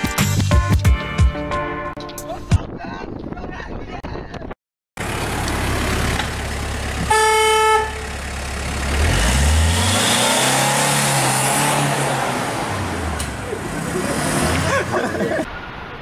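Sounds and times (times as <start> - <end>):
street traffic: 5.0 - 16.0
vehicle horn honking: 7.0 - 8.2
van engine revving past: 8.7 - 15.4.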